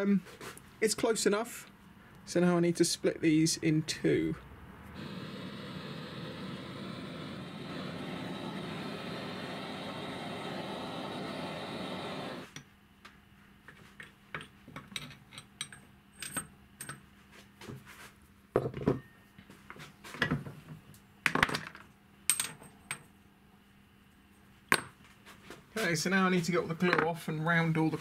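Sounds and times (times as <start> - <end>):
torch flame hissing: 4.9 - 12.6.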